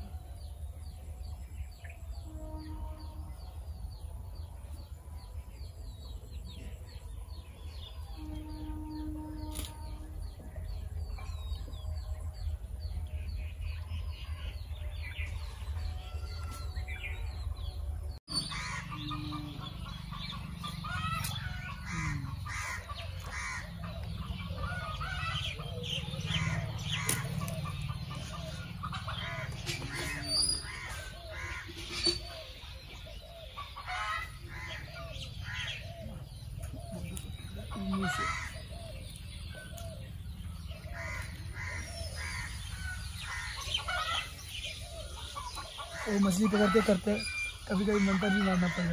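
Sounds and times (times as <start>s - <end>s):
birds calling: 0.0s - 48.9s
chickens clucking: 18.3s - 48.9s.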